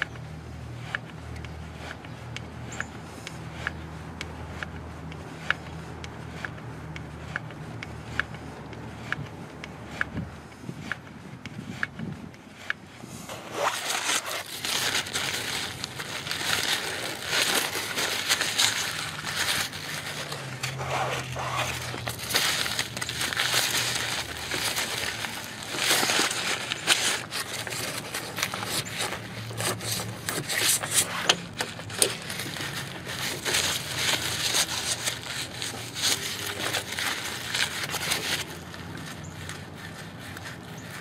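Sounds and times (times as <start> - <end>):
paper towel crinkling: 13.2 - 41.0.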